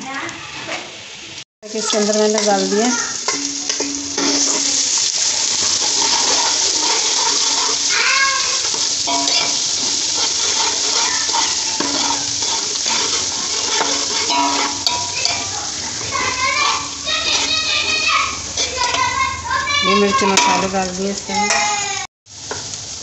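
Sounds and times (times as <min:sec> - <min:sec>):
onions sizzling in hot fat: 0:00.0 - 0:23.0
metal spoon clinking against pot: 0:02.3 - 0:19.1.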